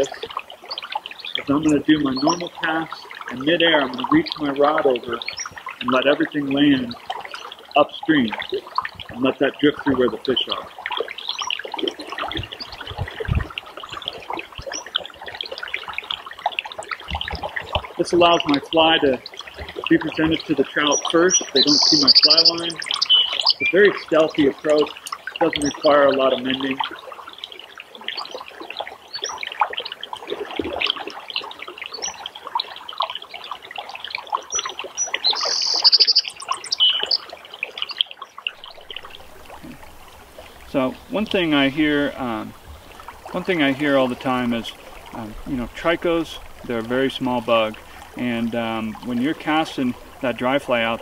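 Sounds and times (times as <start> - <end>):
birds chirping: 0.0 - 26.8, 29.1 - 29.4, 31.9 - 32.3, 34.5 - 51.0
river water babbling: 0.0 - 51.0
dull low thumps: 12.3 - 14.7
rapid high bird trill: 21.3 - 23.8, 34.6 - 38.0.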